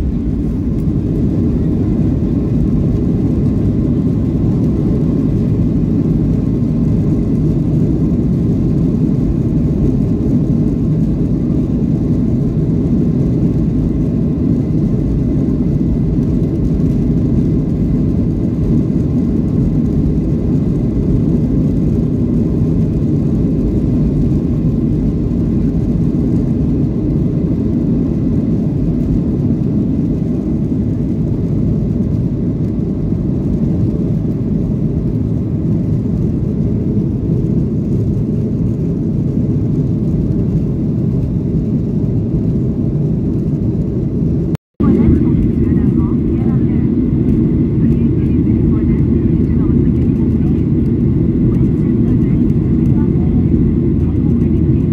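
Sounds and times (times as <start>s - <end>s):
faint steady whine: 0.0s - 22.0s
jet engines deep rumble: 0.0s - 54.9s.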